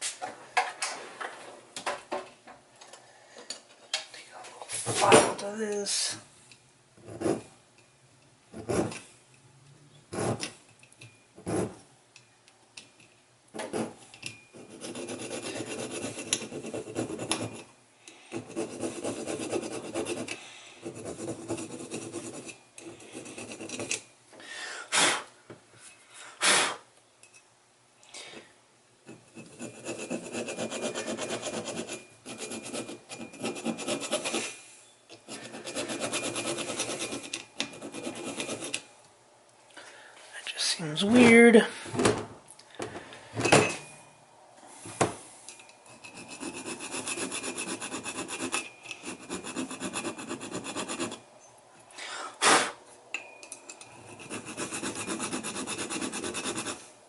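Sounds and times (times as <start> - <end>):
hand file rasping on metal: 14.6 - 17.7, 18.3 - 24.0, 29.1 - 34.6, 35.2 - 38.8, 45.9 - 51.2, 53.9 - 56.9.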